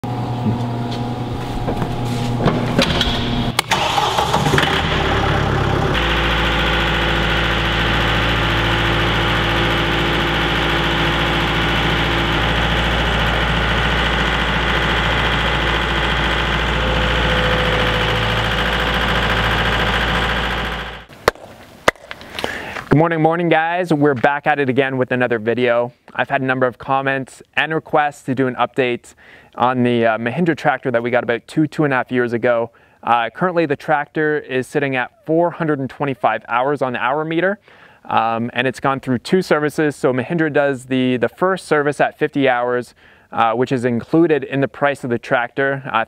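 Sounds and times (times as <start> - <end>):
tractor diesel engine running: 3.2 - 21.1.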